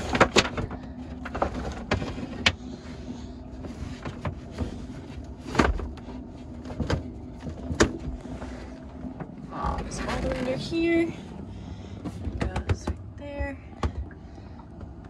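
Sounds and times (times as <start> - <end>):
cable rubbing and rustling: 0.0 - 11.2
low hum: 0.0 - 15.0.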